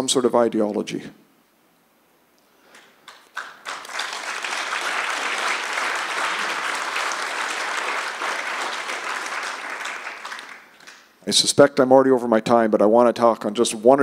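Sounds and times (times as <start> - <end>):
audience applauding: 2.7 - 11.1.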